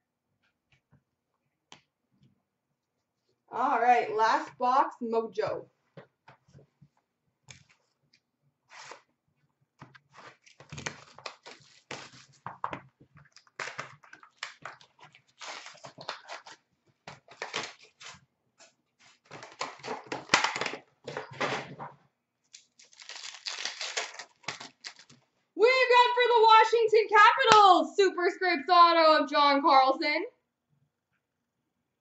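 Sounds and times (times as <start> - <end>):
cardboard and wrappers ripping: 8.7 - 9.1, 10.1 - 12.6, 13.2 - 18.2, 19.0 - 21.7, 22.6 - 25.2.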